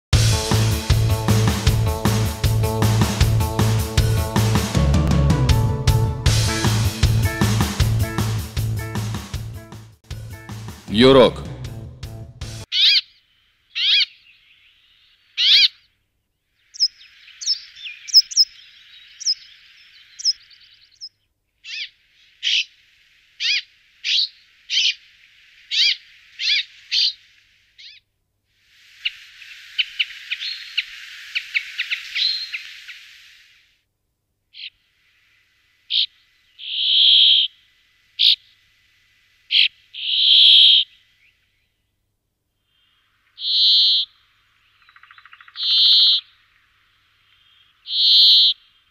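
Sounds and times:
overlapping bird chatter: 12.6 - 15.9, 16.6 - 22.8, 23.4 - 27.2, 29.0 - 33.1, 39.5 - 41.4, 43.2 - 48.9
bird call notes: 16.7 - 21.1, 35.9 - 37.5, 39.5 - 41.0, 43.4 - 44.2, 44.8 - 46.4, 47.5 - 48.7.

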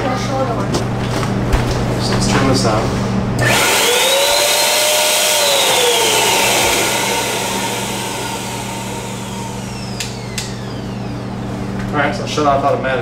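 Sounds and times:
air blower winding down: 3.4 - 12.2
steady low hum: 4.6 - 12.4
sharp clicks: 9.4 - 11.1.

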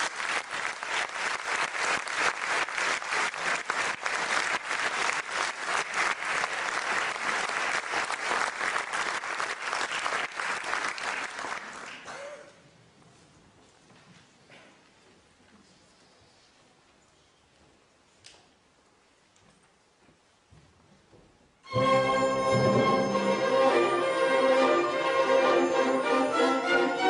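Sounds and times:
audience applauding: 0.0 - 12.4.

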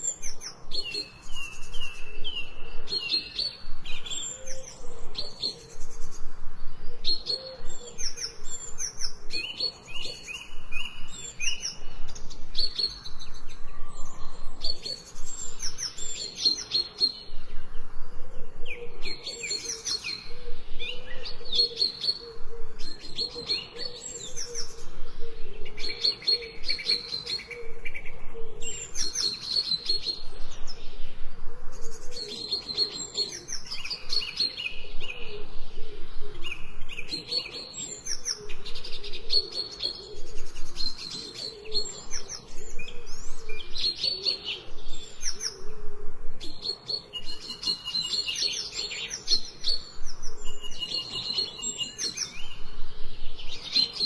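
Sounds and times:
songbirds chirping and singing: 0.0 - 54.0.

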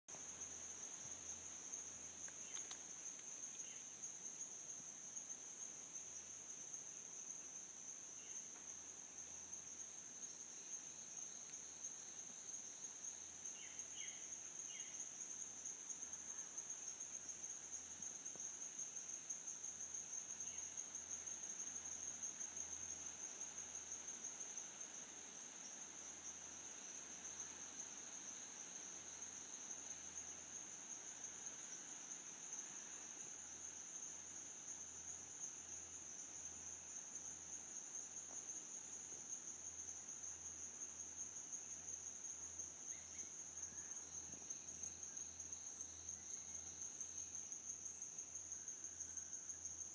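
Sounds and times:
insect chorus: 0.1 - 49.9.

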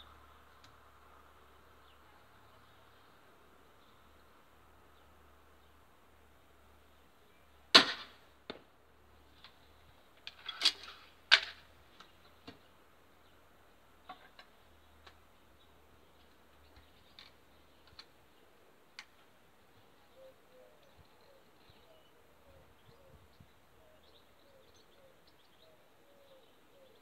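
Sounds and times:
crossbow handling clicks and rattles: 9.3 - 12.6.

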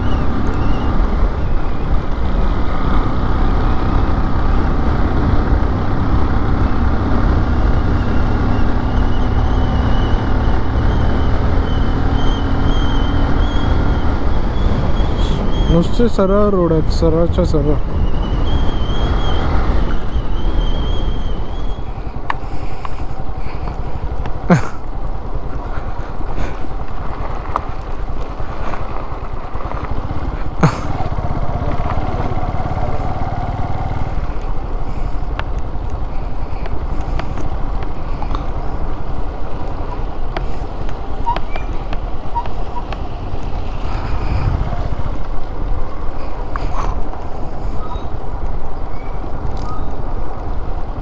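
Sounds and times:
motorcycle engine running: 22.9 - 48.1.

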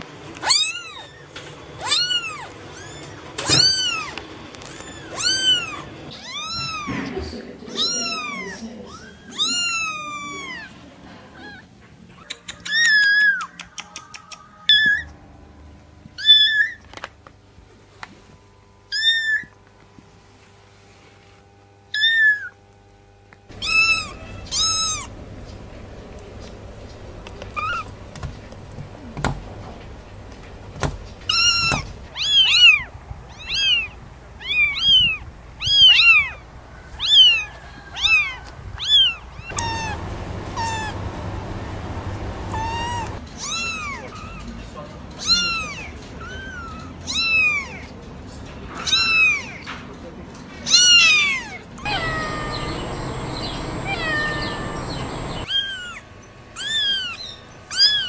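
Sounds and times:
kittens meowing: 0.4 - 10.8, 18.9 - 19.6, 23.5 - 25.2, 27.4 - 28.3, 31.2 - 44.5, 45.2 - 47.9, 48.7 - 49.7, 50.7 - 56.0, 56.6 - 58.0.

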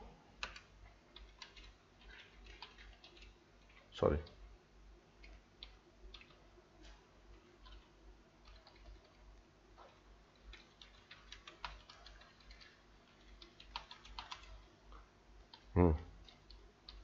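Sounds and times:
computer keyboard clicking: 0.4 - 4.4, 5.2 - 6.4, 7.3 - 9.2, 10.3 - 14.7, 15.5 - 17.0.

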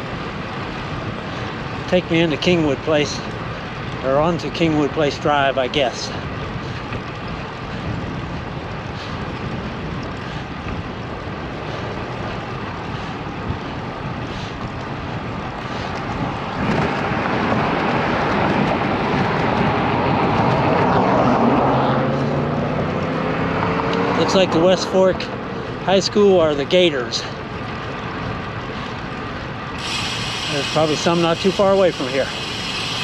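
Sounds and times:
wind on microphone: 6.1 - 25.8
car passing: 16.5 - 33.0.

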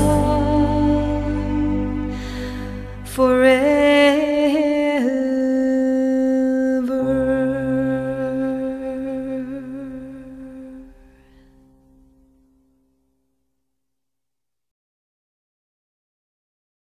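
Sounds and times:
voice singing long notes: 0.0 - 11.4.

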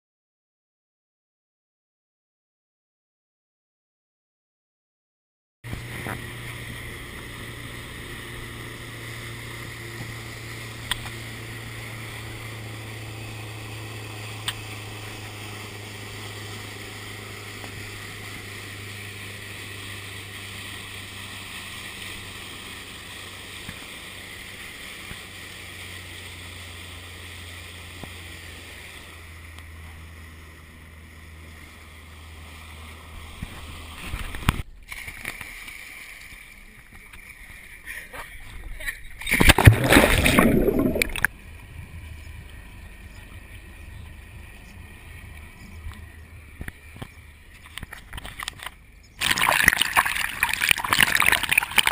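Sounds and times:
boat motor running: 5.7 - 51.9
water rushing along hull: 5.7 - 51.9
heavy splash of person diving: 39.2 - 41.3, 49.2 - 51.9.

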